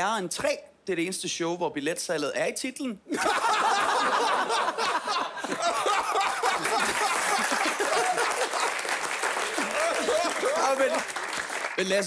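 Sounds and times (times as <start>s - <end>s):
studio audience laughing: 3.1s - 10.9s.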